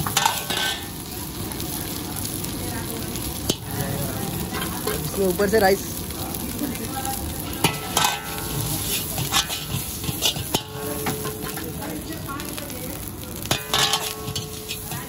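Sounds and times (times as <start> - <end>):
ladle clanking against wok: 0.0 - 1.0, 3.4 - 5.1, 7.4 - 12.0, 13.4 - 15.0
ladle stirring and scraping food: 0.0 - 1.0, 7.4 - 12.5, 13.3 - 15.0
food sizzling in a wok: 0.0 - 15.0.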